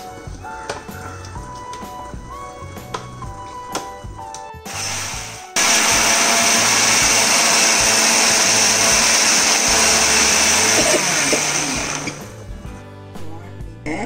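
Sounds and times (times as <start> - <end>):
electric mixer grinder running: 4.7 - 12.5.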